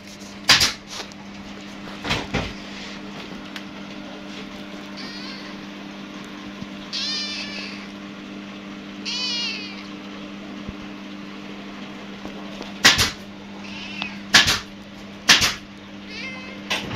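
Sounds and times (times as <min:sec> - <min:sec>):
steady low hum: 0:00.0 - 0:16.9
kitten meowing: 0:05.0 - 0:05.6, 0:06.9 - 0:07.9, 0:09.0 - 0:09.9, 0:13.6 - 0:14.2, 0:16.1 - 0:16.6.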